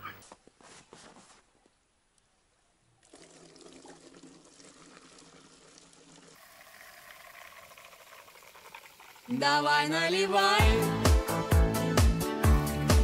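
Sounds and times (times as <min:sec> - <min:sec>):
gasoline pouring into plastic bottle: 0:03.0 - 0:09.4.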